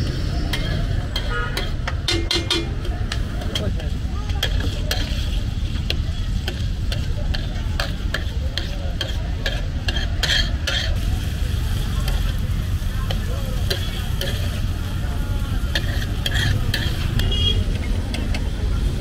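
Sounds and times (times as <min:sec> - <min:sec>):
metal spatula scraping on iron griddle: 0:00.4 - 0:11.4, 0:15.6 - 0:17.4
liver sizzling in oil: 0:04.0 - 0:17.2.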